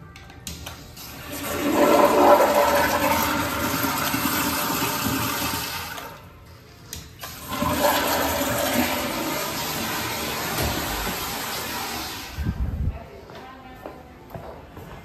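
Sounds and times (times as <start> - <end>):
toilet flushing: 1.0 - 6.4, 7.2 - 12.5.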